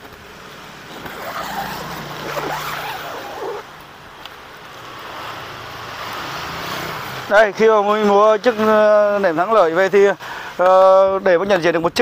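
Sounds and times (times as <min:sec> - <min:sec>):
zipper pulled open: 0:00.9 - 0:03.7.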